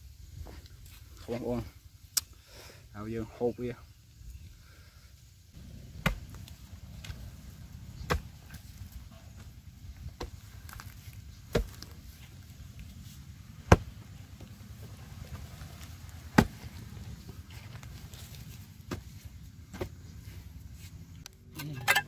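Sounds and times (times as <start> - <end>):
spade chopping into hard clay: 6.0 - 6.4, 8.0 - 8.4, 11.5 - 11.9, 13.7 - 13.9, 16.4 - 16.6.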